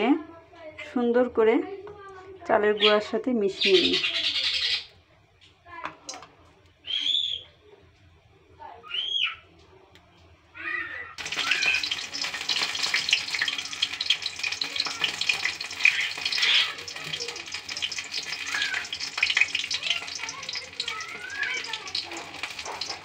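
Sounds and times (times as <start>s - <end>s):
fritters sizzling in hot oil: 11.2s - 23.0s.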